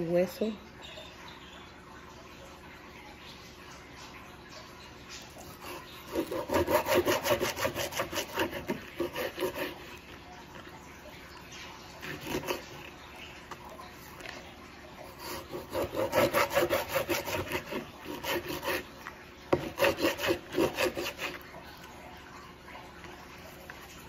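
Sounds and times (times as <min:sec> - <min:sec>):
knife sawing through fish: 0:05.4 - 0:10.7, 0:11.9 - 0:13.3, 0:15.0 - 0:21.9
blade scraping cutting board: 0:05.5 - 0:10.2, 0:12.0 - 0:13.0, 0:15.1 - 0:21.5.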